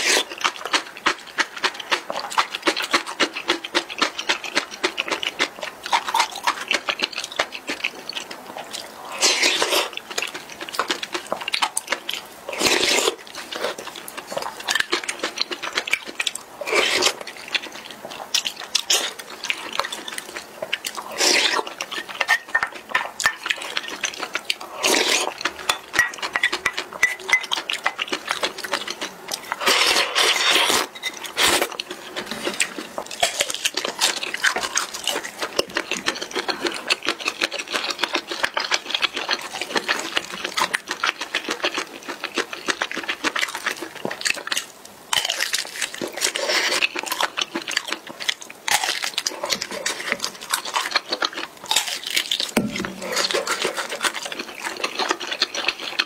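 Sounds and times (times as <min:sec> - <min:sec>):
wet chewing and lip smacks: 0:00.0 - 0:56.0
loud noodle slurp: 0:09.1 - 0:10.0, 0:12.5 - 0:13.8, 0:16.6 - 0:17.2, 0:21.0 - 0:21.7, 0:24.7 - 0:25.5, 0:29.4 - 0:33.3.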